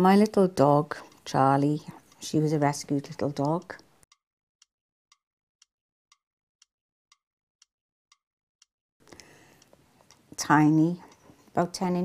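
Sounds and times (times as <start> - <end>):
clock ticking: 0.0 - 4.2, 9.1 - 12.0.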